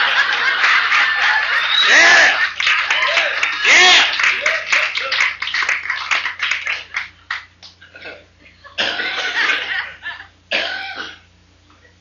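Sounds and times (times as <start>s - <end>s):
audience laughing: 0.0s - 6.1s, 8.5s - 10.3s
audience clapping: 0.0s - 7.8s
tape hiss and hum: 0.0s - 12.0s.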